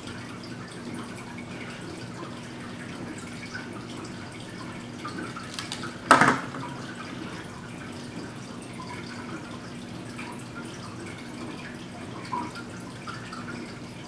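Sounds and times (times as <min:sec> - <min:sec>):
lighter knocking on wooden table: 0:06.1 - 0:06.6.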